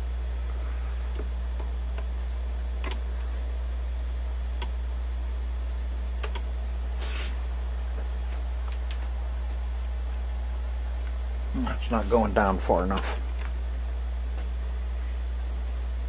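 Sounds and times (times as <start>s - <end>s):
low electrical hum: 0.0s - 16.0s
turntable light clicks: 2.8s - 3.3s, 6.2s - 6.5s.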